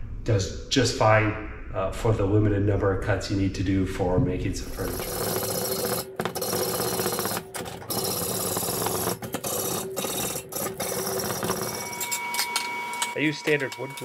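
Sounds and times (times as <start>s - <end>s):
hacksaw cutting steel pipe: 4.8s - 14.0s.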